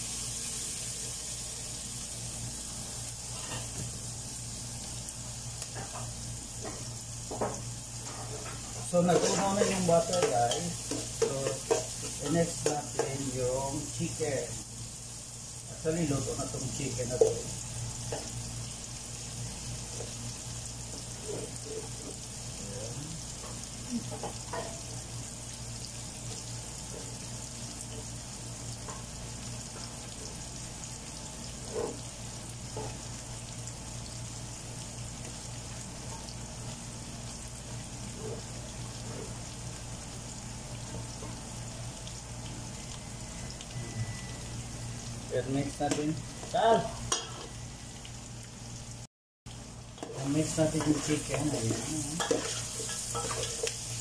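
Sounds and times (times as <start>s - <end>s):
food sizzling in butter: 0.0s - 54.0s
metal spoon knocking pan: 9.1s - 13.2s
low steady hum: 39.8s - 48.9s.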